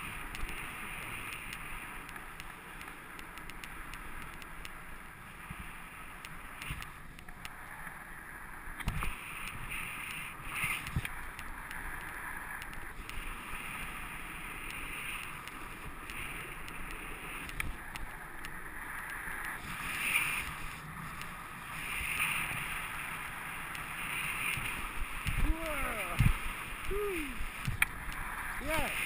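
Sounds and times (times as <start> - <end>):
snowboard scraping over snow: 0.0 - 2.8, 7.6 - 29.0
wind rushing over microphone: 8.6 - 29.0.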